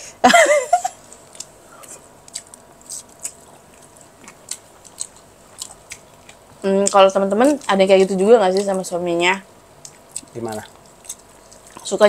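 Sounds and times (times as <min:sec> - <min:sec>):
person chewing food: 0:01.0 - 0:12.0.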